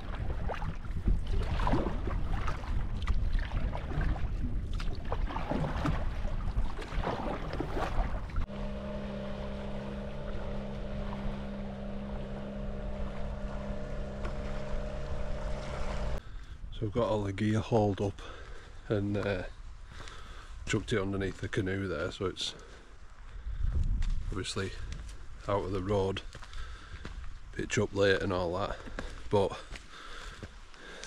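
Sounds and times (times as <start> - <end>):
water splashing around canoe: 0.0 - 16.2
wind rumbling on microphone: 0.0 - 17.6, 23.2 - 27.6
steady motor hum: 5.3 - 16.3.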